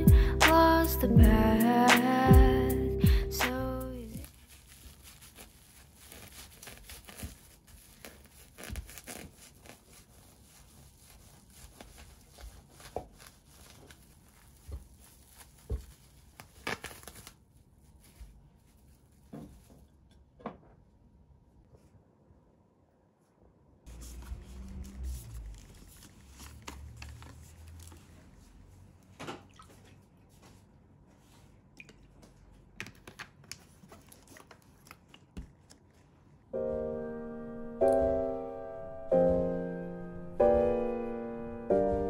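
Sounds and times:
cling film crinkling: 4.2s - 19.6s, 23.9s - 28.4s.

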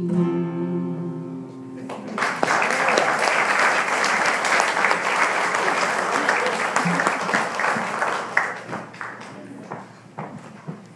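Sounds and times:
congregation applauding: 1.8s - 9.9s.

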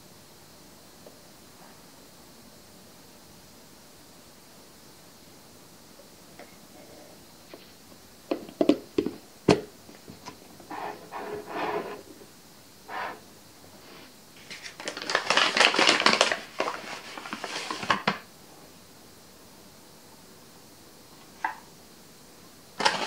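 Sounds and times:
paper bag crinkling: 14.4s - 18.2s, 22.8s - 23.0s.

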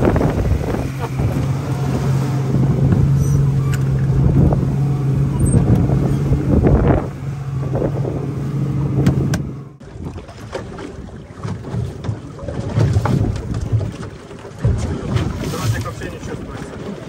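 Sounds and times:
wind gusting on microphone: 0.0s - 9.6s
boat motor running: 0.0s - 17.0s.

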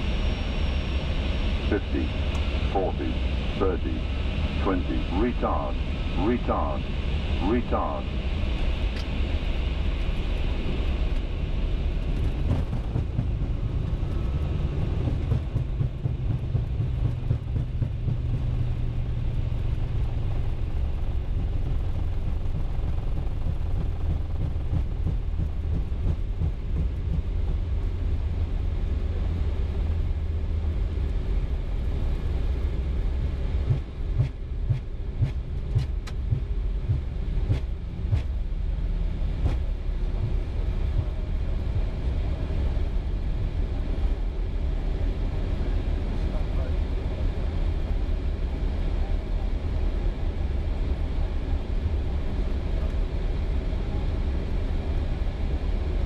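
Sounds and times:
airliner rolling on runway: 0.0s - 56.0s.

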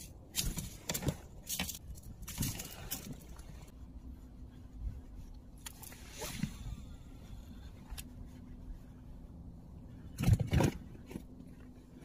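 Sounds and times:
fishing tackle clicks and rustles: 0.0s - 3.6s
faint steady hum: 0.0s - 12.0s.

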